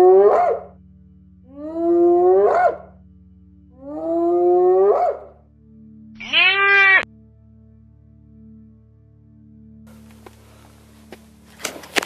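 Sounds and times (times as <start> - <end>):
hyena whooping: 6.2 - 7.0.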